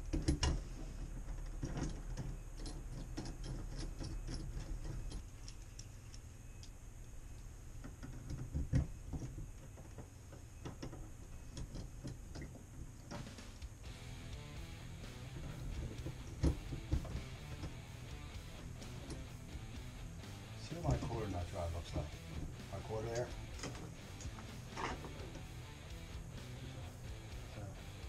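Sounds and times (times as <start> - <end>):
music: 13.1 - 28.0.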